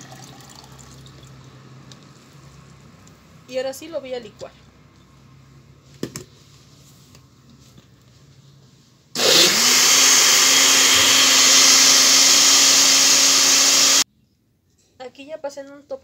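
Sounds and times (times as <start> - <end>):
blender motor running: 9.2 - 14.0.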